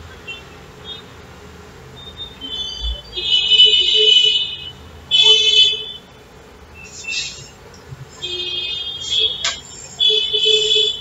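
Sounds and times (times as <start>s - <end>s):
vehicle horn honking: 2.1s - 6.0s, 8.2s - 11.0s.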